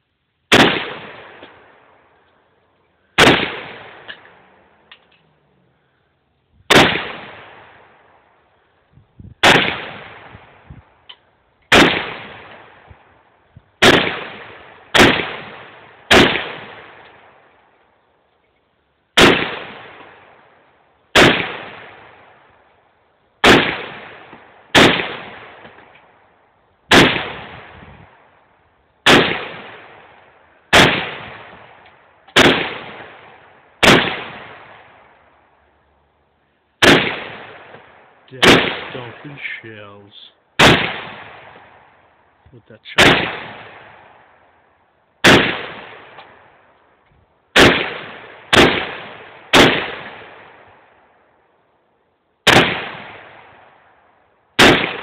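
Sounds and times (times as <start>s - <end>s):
rifle shots with echo: 0.5s - 2.2s, 3.2s - 4.8s, 6.7s - 8.3s, 9.4s - 10.7s, 11.7s - 13.1s, 13.8s - 17.5s, 19.2s - 22.6s, 23.4s - 25.9s, 26.9s - 28.3s, 29.0s - 35.2s, 36.8s - 42.0s, 42.8s - 44.5s, 45.2s - 46.6s, 47.5s - 51.0s, 52.4s - 54.0s, 54.6s - 55.0s.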